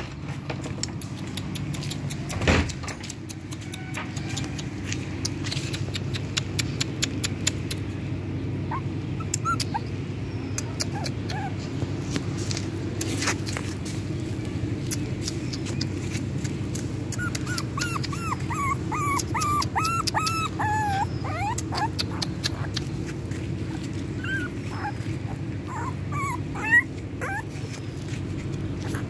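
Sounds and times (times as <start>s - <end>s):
low background rumble: 0.0s - 29.0s
puppy whimpering: 8.6s - 13.7s, 14.9s - 29.0s.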